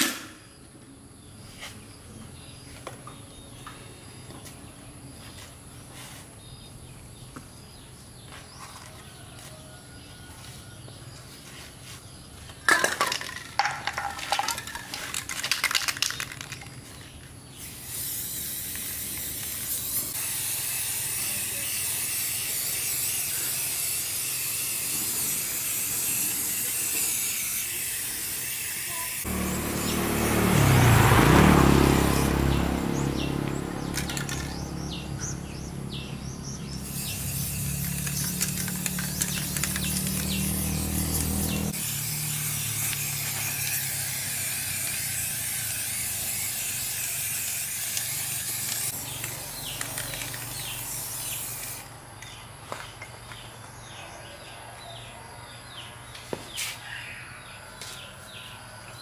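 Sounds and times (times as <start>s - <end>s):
spray paint can hissing: 17.5s - 29.3s, 36.7s - 51.9s.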